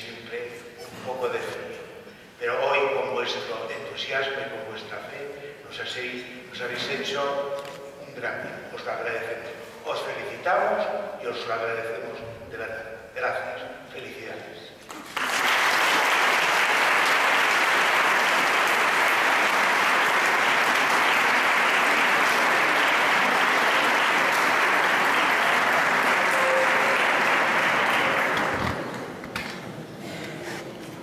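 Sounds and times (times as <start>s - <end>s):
audience applauding: 14.9s - 29.1s.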